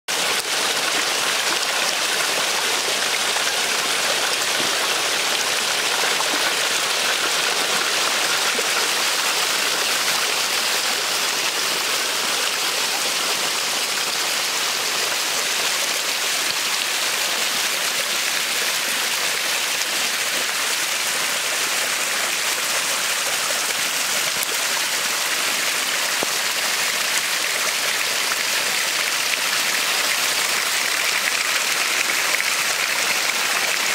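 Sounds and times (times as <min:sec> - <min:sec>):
small waterfall splashing: 0:00.1 - 0:33.9.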